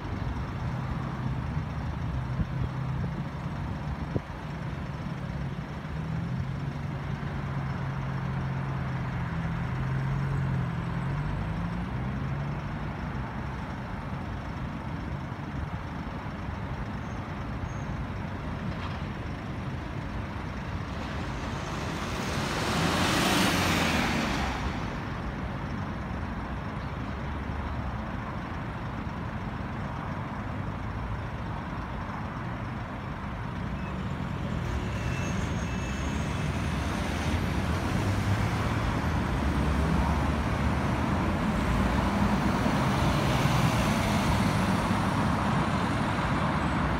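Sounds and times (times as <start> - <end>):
diesel engine idling: 0.0 - 34.4.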